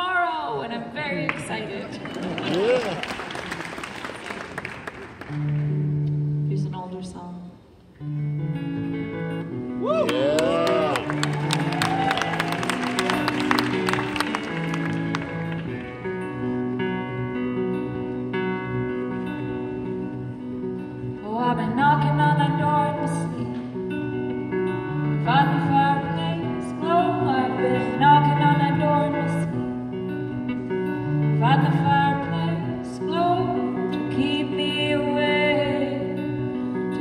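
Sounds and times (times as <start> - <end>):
acoustic guitar: 5.1 - 37.0
woman singing: 21.2 - 23.6, 25.2 - 29.6, 31.3 - 37.0.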